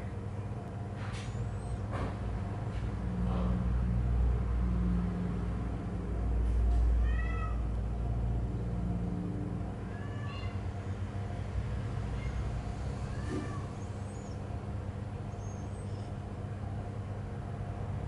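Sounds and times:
cat meowing: 7.0 - 7.7, 9.8 - 10.6, 12.1 - 14.3.

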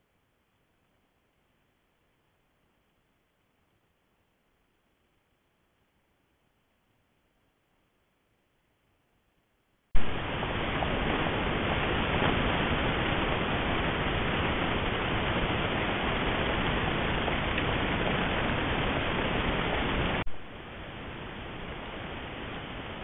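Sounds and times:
steady microphone hiss: 0.0 - 23.0.

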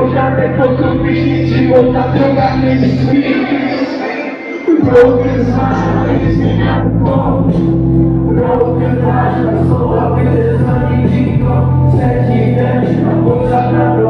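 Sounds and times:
crowd singing along: 0.0 - 14.0
person rapping: 0.0 - 14.0
rap backing track with heavy bass: 0.0 - 14.0.

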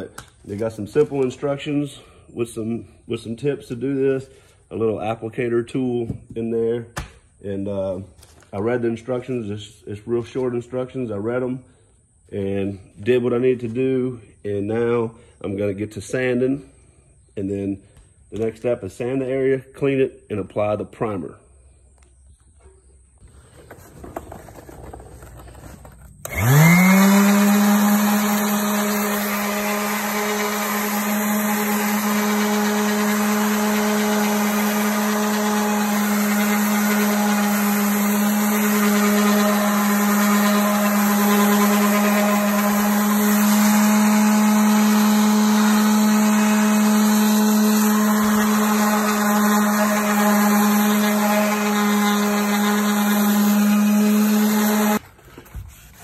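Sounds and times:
electric sander whining and humming: 23.7 - 55.0.

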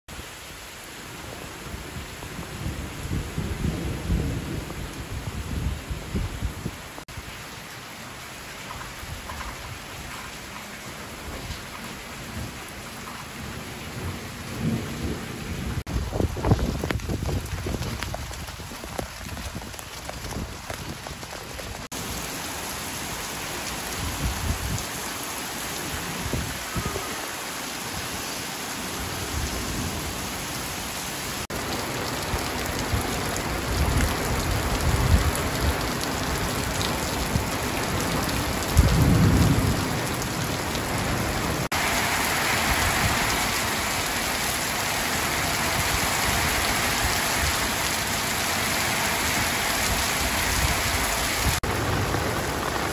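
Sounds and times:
heavy rain on paving and puddles: 0.1 - 52.9
low rumbles of thunder: 2.4 - 6.6, 13.9 - 18.4, 38.4 - 41.4.

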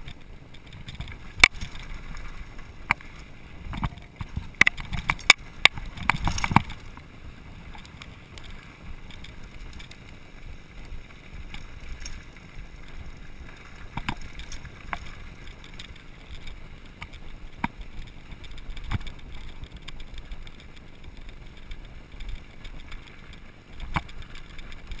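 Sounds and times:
bike knocking over rocks: 0.0 - 7.1, 10.9 - 23.1
bike tyres rumbling on gravel: 0.0 - 25.0.

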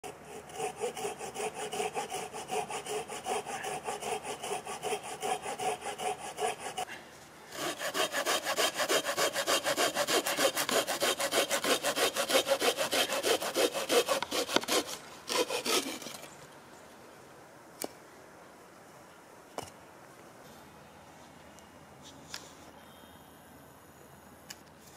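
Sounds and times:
hand saw cutting branch: 0.0 - 16.3.

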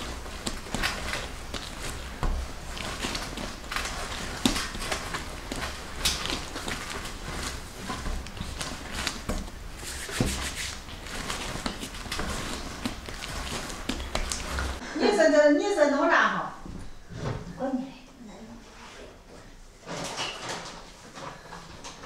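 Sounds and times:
dough kneaded on a board: 0.0 - 14.8.

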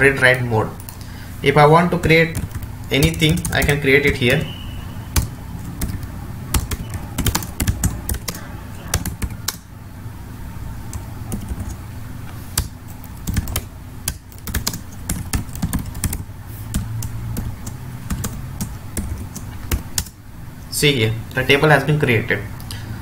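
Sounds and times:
low steady hum: 0.0 - 23.0
keyboard typing clicks: 5.1 - 9.7, 12.6 - 20.2.

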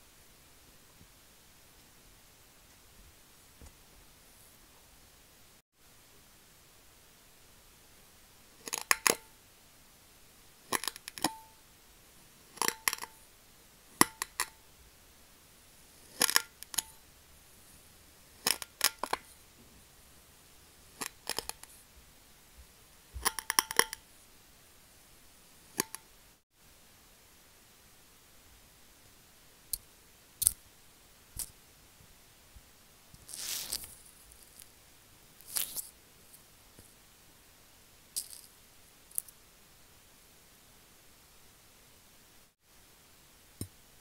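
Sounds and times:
tongs pushing through sand: 33.2 - 34.7.

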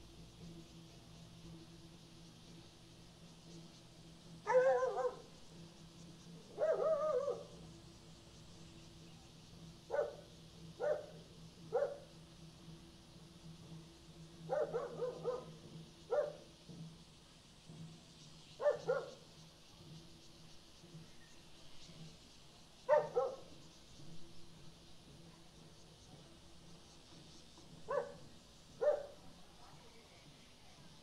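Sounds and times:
faint high hiss: 0.0 - 31.0
dog barking: 4.5 - 5.3, 6.6 - 7.5, 9.9 - 10.2, 10.8 - 12.0, 14.5 - 16.4, 18.6 - 19.2, 22.9 - 23.5, 27.9 - 28.2, 28.8 - 29.2.

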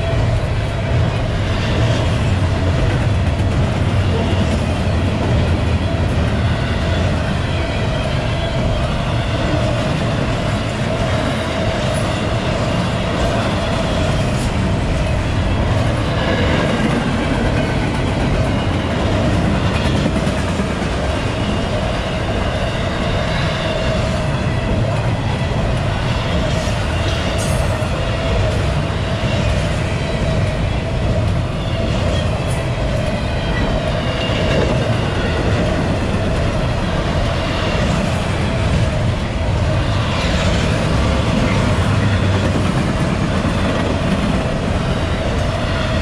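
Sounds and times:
freight train wheels rumbling: 0.0 - 46.0.

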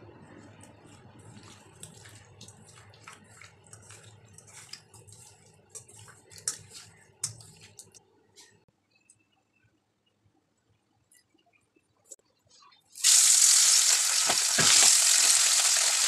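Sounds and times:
wet squishes of fish rubbed by hand: 0.5 - 7.9.

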